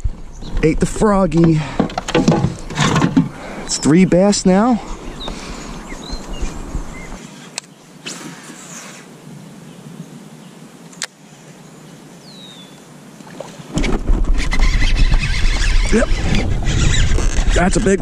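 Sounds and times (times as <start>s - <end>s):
hiss of water and air: 7.2s - 9.2s.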